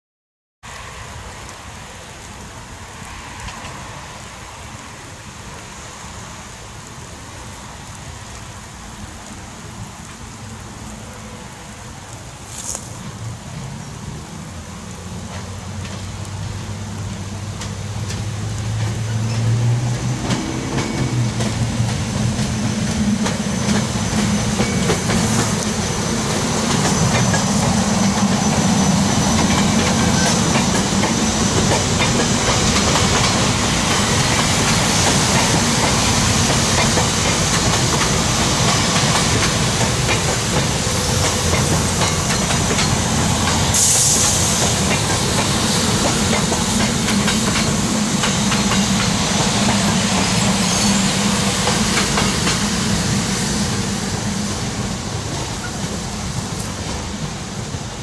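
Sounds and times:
electric train passing: 0:00.7 - 0:58.0
wheels clicking on rails: 0:15.1 - 0:58.0.

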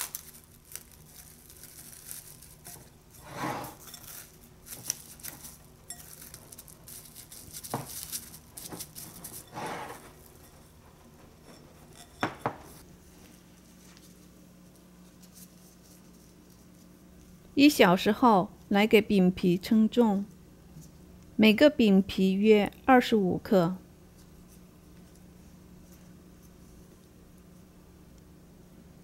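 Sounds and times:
cling film rustling: 0:00.0 - 0:03.2.

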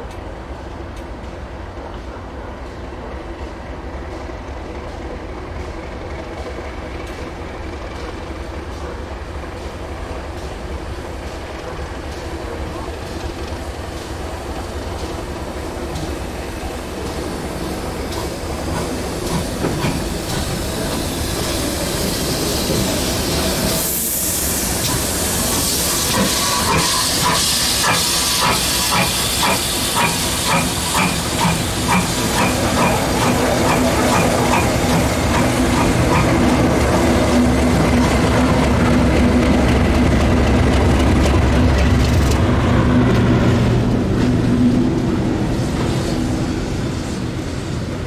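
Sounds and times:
steam train regular beat: 0:02.6 - 0:42.0
hiss of steam: 0:08.2 - 0:37.7, 0:45.0 - 0:48.0.

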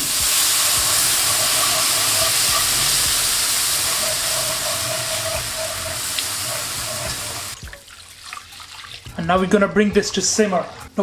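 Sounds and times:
whisking in a pan: 0:00.0 - 0:07.6
roux sizzling in a pan: 0:00.0 - 0:08.7.

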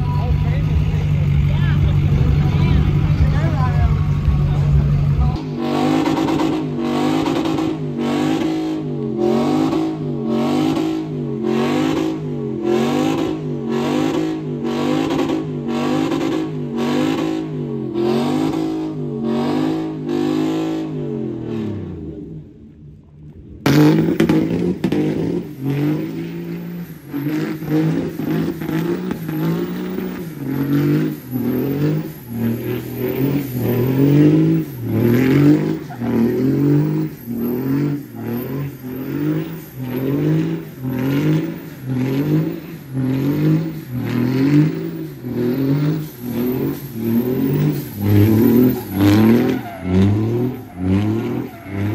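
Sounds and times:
pickup truck engine revving: 0:00.0 - 0:22.4, 0:23.6 - 0:51.9.

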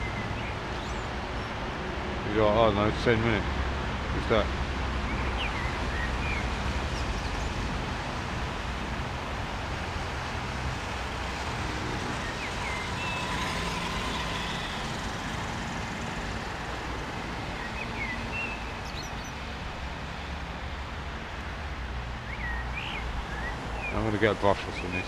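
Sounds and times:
bird chirps: 0:22.3 - 0:24.0.

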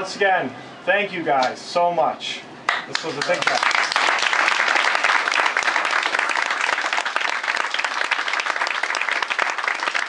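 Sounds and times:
crowd applauding: 0:02.7 - 0:10.0.

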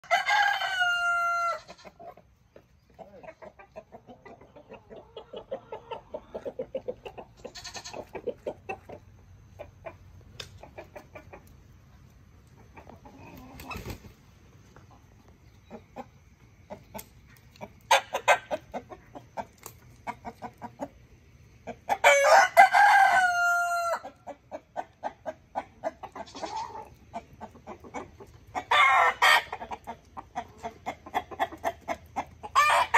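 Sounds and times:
rooster crowing: 0:00.0 - 0:01.8, 0:22.0 - 0:24.2, 0:28.7 - 0:29.5
hens clucking softly: 0:01.5 - 0:22.4, 0:23.1 - 0:32.9.

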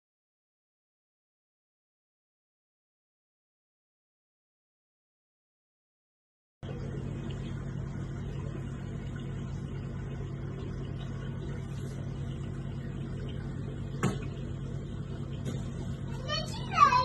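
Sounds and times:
low mechanical hum: 0:06.6 - 0:17.0.

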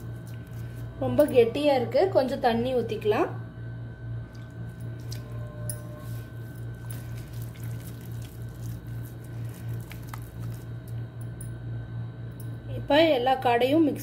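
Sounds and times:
steady low hum: 0:00.0 - 0:14.0
hand squishing wet paste: 0:04.2 - 0:05.4, 0:06.1 - 0:11.0.

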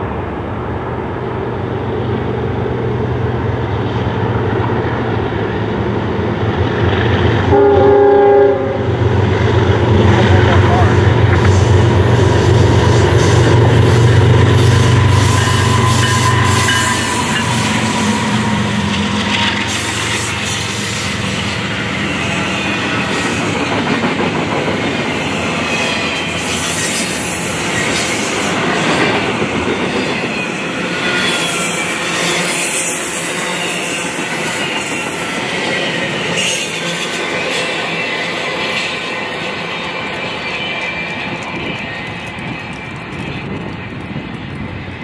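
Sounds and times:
diesel locomotive engine drone: 0:00.0 - 0:45.0
train wheel and rail noise: 0:00.0 - 0:45.0
high wheel squeals: 0:14.5 - 0:23.1.

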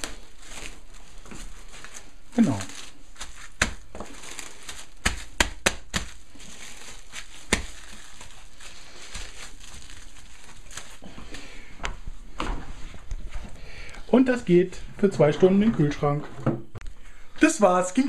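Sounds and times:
cling film crinkling: 0:00.0 - 0:11.5.

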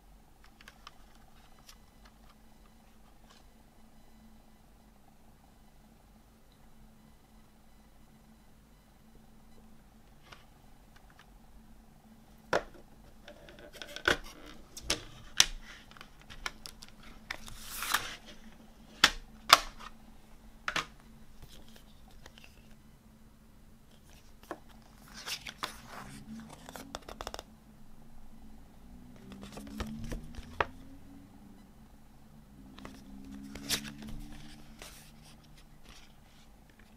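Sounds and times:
paper booklet rustling: 0:13.8 - 0:18.6, 0:23.9 - 0:27.4, 0:32.8 - 0:36.9.

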